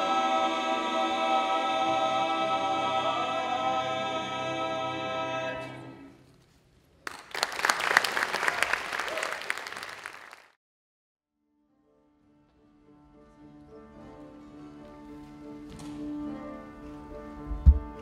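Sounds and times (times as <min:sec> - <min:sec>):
audience applause: 0:07.0 - 0:10.6.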